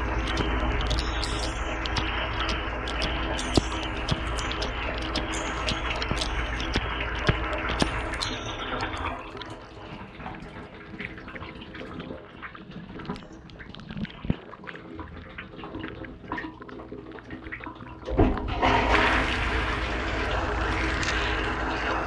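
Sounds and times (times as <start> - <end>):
low steady hum: 0.0 - 14.4
water dripping and trickling: 0.0 - 22.0.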